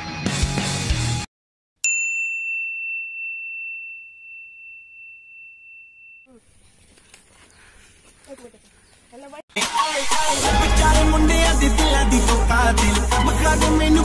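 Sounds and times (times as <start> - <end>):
rock music: 0.0 - 1.3, 9.6 - 14.0
bright bell-like ding: 1.8 - 6.3.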